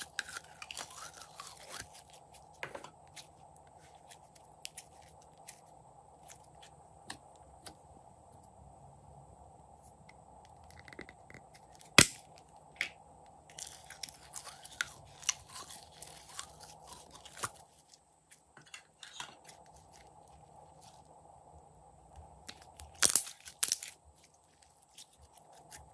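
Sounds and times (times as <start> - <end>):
slime crackling and snapping: 22.5 - 24.0.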